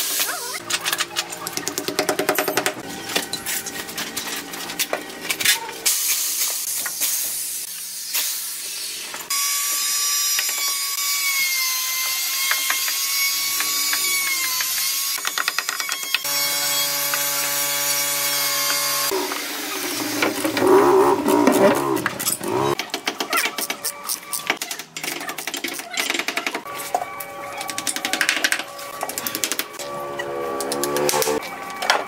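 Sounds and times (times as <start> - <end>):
power tool motor whining: 16.0 - 22.8.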